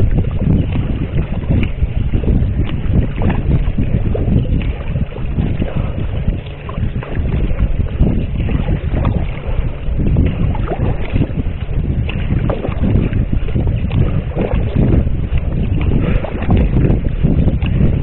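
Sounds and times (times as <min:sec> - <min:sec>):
paddle splashing: 0:00.0 - 0:18.0
water lapping at hull: 0:00.0 - 0:18.0
wind buffeting microphone: 0:00.0 - 0:18.0.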